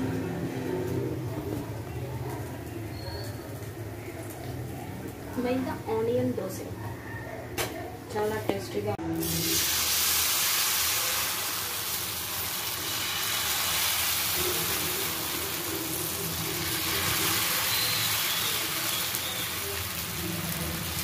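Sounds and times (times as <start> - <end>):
batter sizzling on a hot pan: 9.2 - 21.0.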